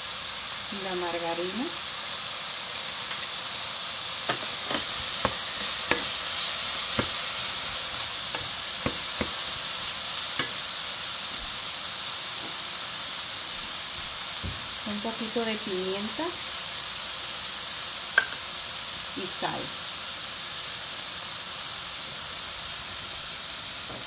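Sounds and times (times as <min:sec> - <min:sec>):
vegetables sizzling in a skillet: 0:00.0 - 0:24.0
wooden spoon knocking on pan: 0:04.3 - 0:06.2, 0:06.9 - 0:07.2, 0:08.3 - 0:09.4, 0:18.2 - 0:18.4.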